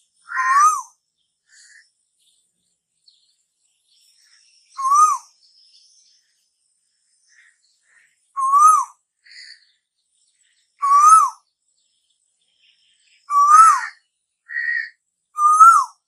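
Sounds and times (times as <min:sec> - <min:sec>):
bird whistled calls: 0:00.2 - 0:00.9, 0:04.7 - 0:05.4, 0:08.3 - 0:09.6, 0:10.8 - 0:11.4, 0:13.2 - 0:16.0.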